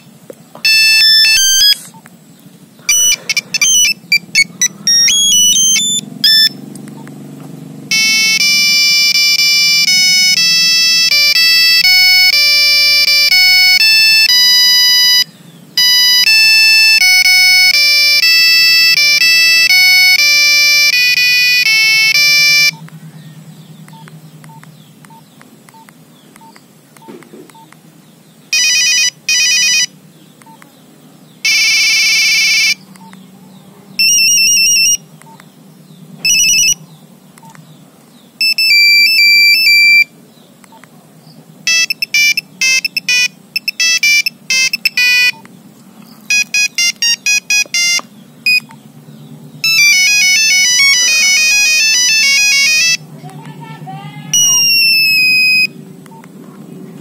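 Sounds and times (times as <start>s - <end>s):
beeping monophonic ringtone melody: 0.6s - 2.0s, 2.9s - 6.6s, 7.8s - 22.9s, 28.5s - 30.6s, 31.4s - 32.9s, 34.0s - 35.1s, 36.2s - 36.8s, 38.4s - 40.2s, 41.6s - 45.4s, 46.2s - 48.8s, 49.6s - 53.1s, 54.3s - 55.8s
faint short beeps: 54.4s - 55.7s.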